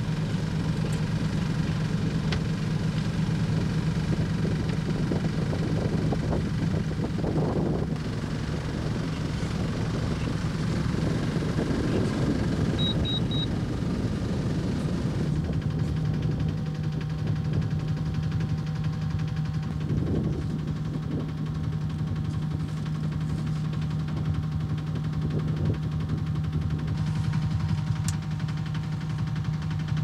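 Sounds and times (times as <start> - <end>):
boat engine humming: 0.0 - 30.0
high electronic beeps: 12.8 - 13.5.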